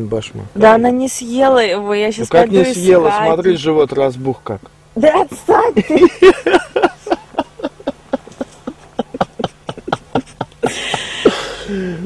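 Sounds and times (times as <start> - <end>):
woman laughing: 5.5 - 12.0.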